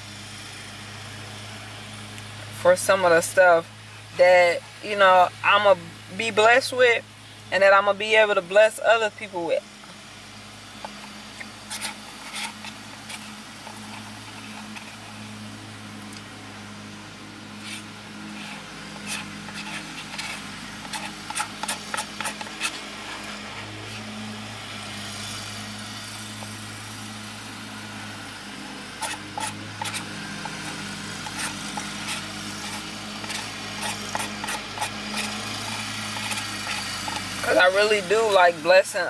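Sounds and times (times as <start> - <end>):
spoon scraping ice cream container: 10.8 - 15.1, 17.6 - 24.2, 29.0 - 38.1.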